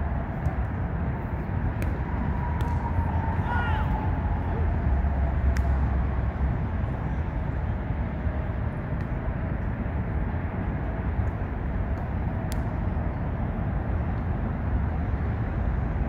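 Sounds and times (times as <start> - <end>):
highway traffic rumble: 0.0 - 16.0.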